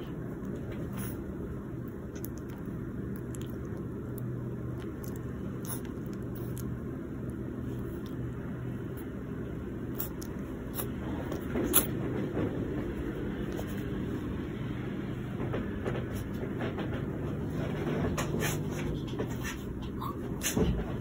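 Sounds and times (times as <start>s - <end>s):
faint hum: 0.0s - 21.0s
low background rumble: 0.0s - 21.0s.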